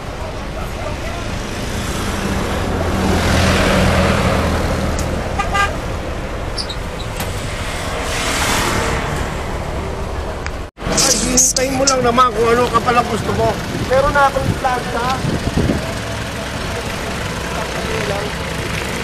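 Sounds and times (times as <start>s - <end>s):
jeep engine humming: 0.0s - 19.0s
road and wind noise: 0.0s - 19.0s
vehicle horn toot: 5.4s - 5.8s.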